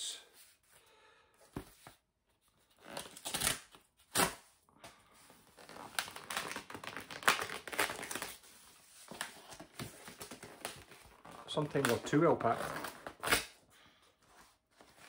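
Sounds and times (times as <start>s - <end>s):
packaging tearing and crinkling: 5.6s - 8.4s.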